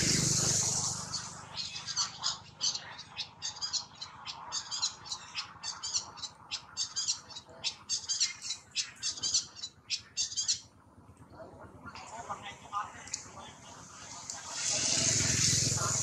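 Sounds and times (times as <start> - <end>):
high chirping animal calls: 0.0 - 10.8.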